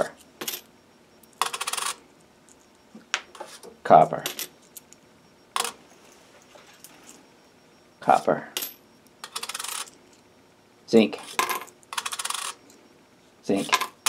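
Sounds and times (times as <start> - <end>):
coins clicking on scale: 1.4 - 2.0, 8.6 - 9.9, 11.2 - 12.6, 13.6 - 14.0
coins jingling: 8.6 - 9.9.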